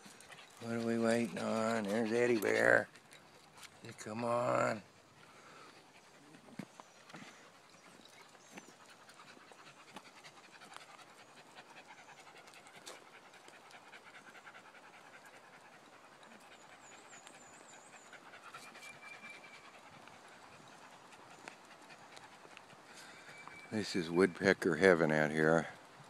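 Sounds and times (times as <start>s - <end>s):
small dog panting: 0.0s - 26.0s
bird chirping: 16.4s - 21.4s, 22.9s - 24.1s.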